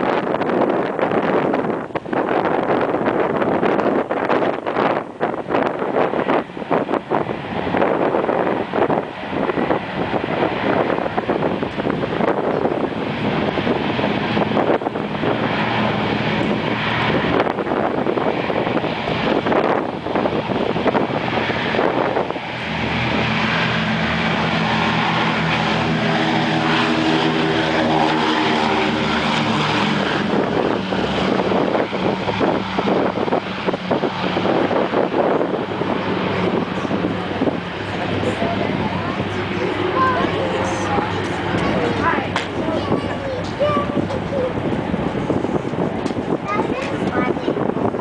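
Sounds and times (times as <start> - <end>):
radial aircraft engines roaring: 0.0 - 48.0.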